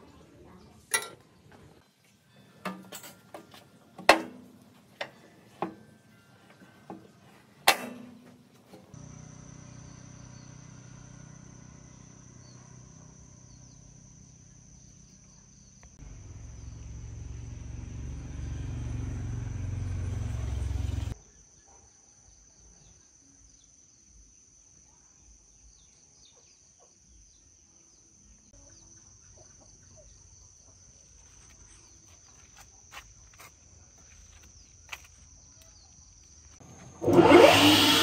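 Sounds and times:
crickets and insects chirping: 8.9s - 37.8s
low machine hum: 16.0s - 21.2s.

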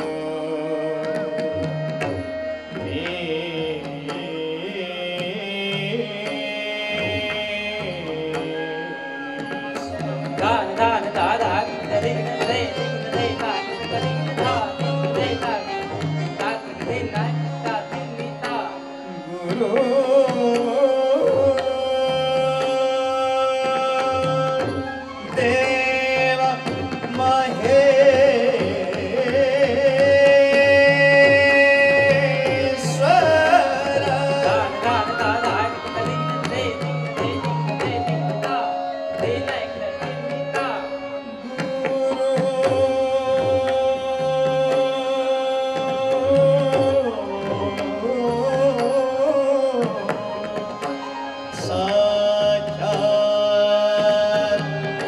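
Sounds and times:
harmonium: 0.0s - 55.0s
person singing: 0.0s - 55.0s
flute melody: 0.6s - 3.3s, 8.0s - 15.4s, 21.4s - 28.2s, 30.6s - 55.0s.

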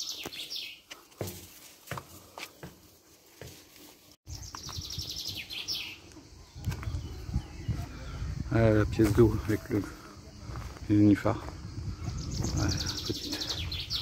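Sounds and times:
songbird trill: 0.0s - 1.0s, 4.3s - 14.0s.

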